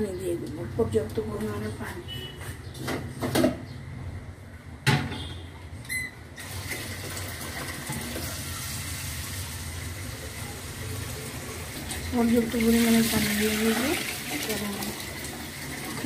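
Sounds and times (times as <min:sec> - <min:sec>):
water running: 0:06.4 - 0:16.0.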